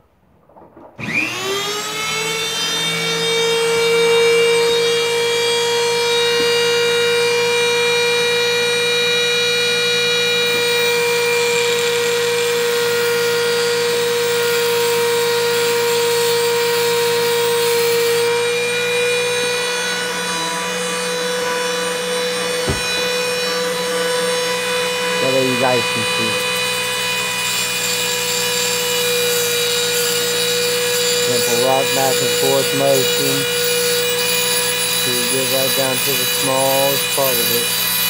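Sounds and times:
rotary tool whining: 0.7 - 38.0
cutting wheel grinding glass: 10.4 - 38.0.

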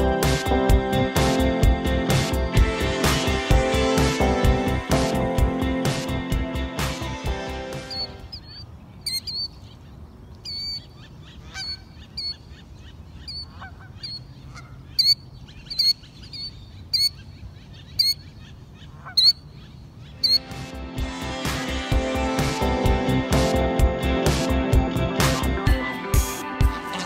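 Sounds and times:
killdeer calling: 7.7 - 20.7.

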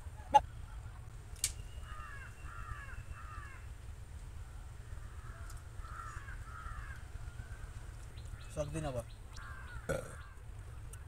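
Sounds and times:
crow cawing: 1.8 - 3.7, 4.9 - 7.7, 9.3 - 10.4.

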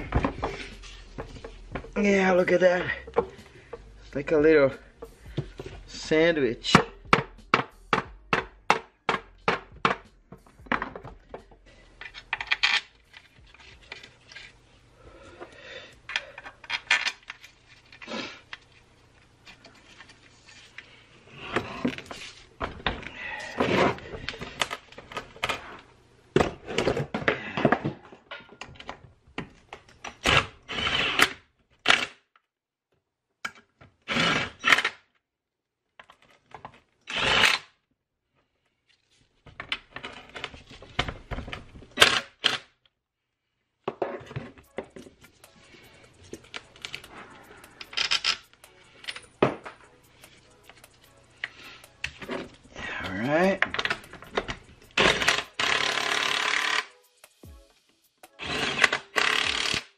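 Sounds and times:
metal knocks and clunks: 6.7 - 11.6.

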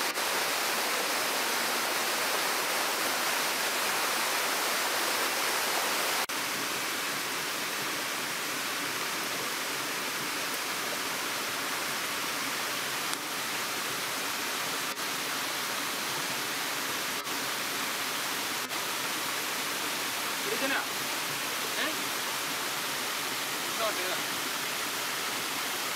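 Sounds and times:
waterfall rushing over rocks: 0.0 - 25.9.

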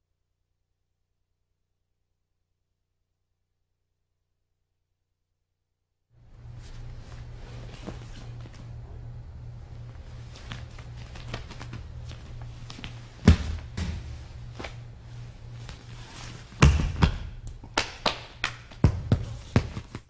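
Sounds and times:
low electrical hum: 6.2 - 20.0
cloth rustling: 6.4 - 8.7, 9.8 - 16.6
bodies thudding on mat: 13.2 - 14.2.

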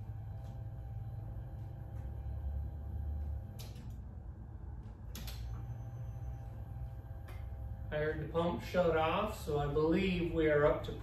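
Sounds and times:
electric fuel pump humming: 0.0 - 9.9.

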